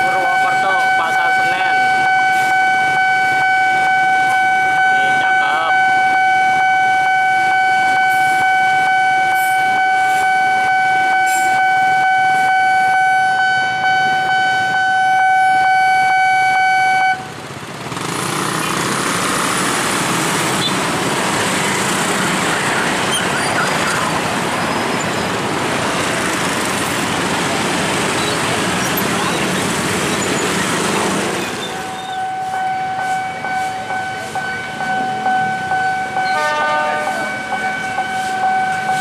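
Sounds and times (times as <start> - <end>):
level crossing alarm tone: 0.0 - 17.3, 31.3 - 39.0
motorbike and car engines: 16.5 - 36.3.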